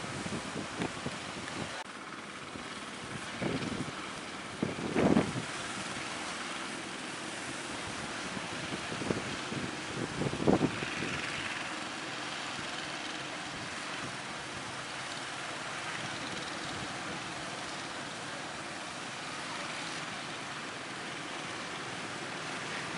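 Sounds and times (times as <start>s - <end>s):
wind buffeting microphone: 0.0s - 1.8s, 2.5s - 17.6s
sea surf breaking: 3.3s - 22.9s.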